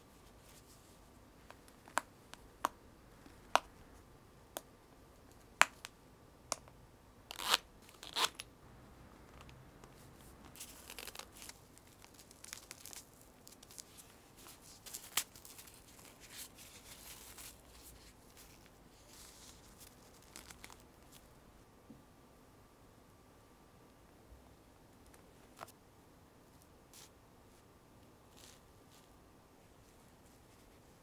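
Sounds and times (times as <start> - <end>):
soft fabric rustling: 0.0 - 1.9, 9.9 - 21.3, 28.3 - 31.0.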